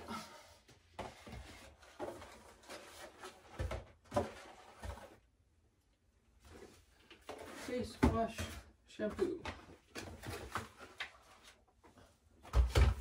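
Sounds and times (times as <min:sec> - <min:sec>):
cardboard boxes rustling: 0:00.9 - 0:05.2, 0:06.5 - 0:11.7.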